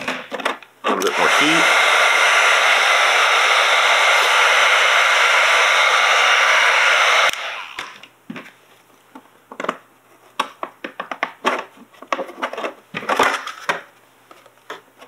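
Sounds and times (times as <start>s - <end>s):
heat gun blowing: 0.9s - 8.0s.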